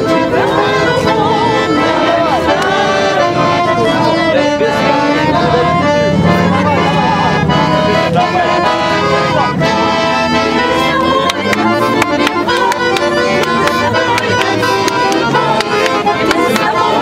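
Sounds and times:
accordion: 0.0s - 17.0s
women singing together: 0.0s - 17.0s
regular beat of taps: 11.2s - 16.8s.

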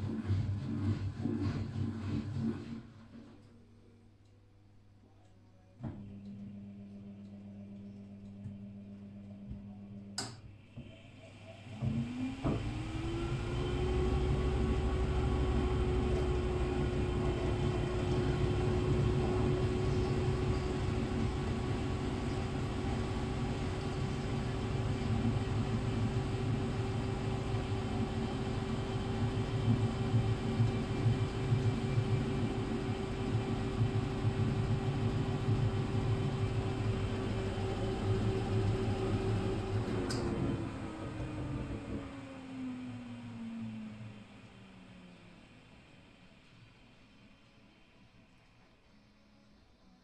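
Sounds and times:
washing machine motor whine: 0.0s - 3.6s, 5.8s - 50.0s.

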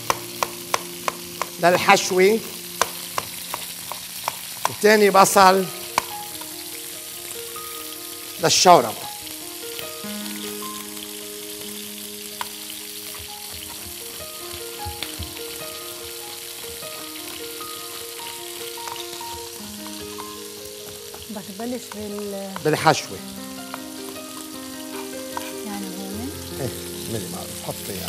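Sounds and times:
knife chopping on cutting board: 0.0s - 1.6s
quiet background music: 0.0s - 28.0s
steady hiss: 0.0s - 28.0s.

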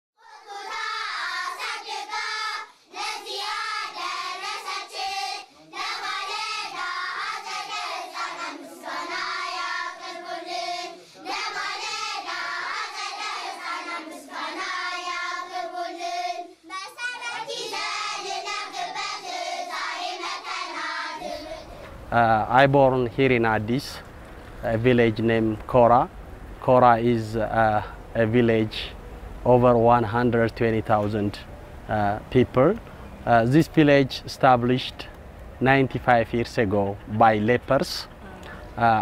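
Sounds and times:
children singing: 0.2s - 21.9s.

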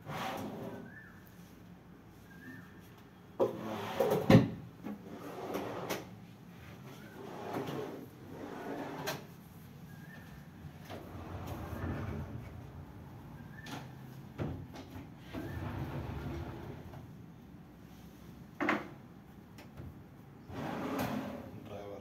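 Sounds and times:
drawers sliding on runners: 0.0s - 0.9s, 5.0s - 6.1s, 7.1s - 9.3s, 10.8s - 13.9s, 15.2s - 17.0s, 20.5s - 21.5s.

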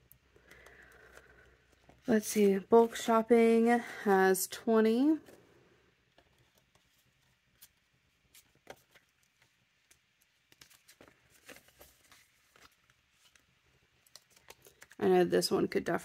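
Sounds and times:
paper banknotes rustling: 6.3s - 15.0s.

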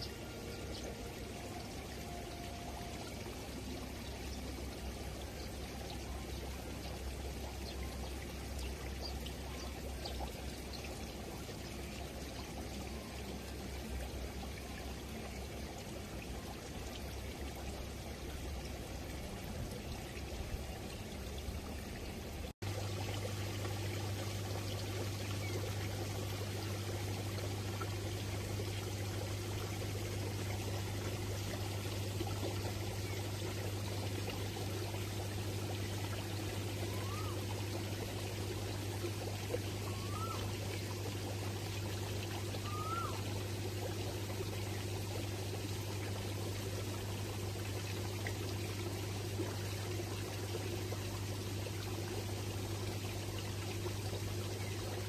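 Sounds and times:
water pouring and trickling: 0.0s - 55.0s.

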